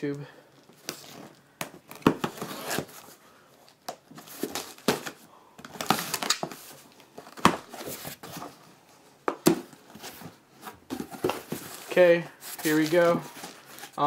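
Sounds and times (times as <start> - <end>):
tape tearing: 0.8 - 3.1, 5.8 - 6.6
knife slitting packing tape: 2.3 - 2.9
cardboard rustling: 4.1 - 8.8, 9.4 - 14.0.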